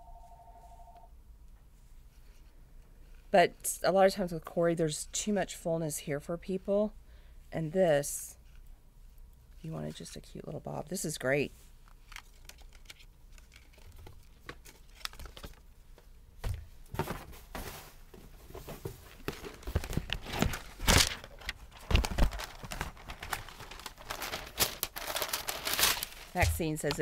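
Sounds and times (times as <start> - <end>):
wig rustling and crackling: 11.6 - 27.0.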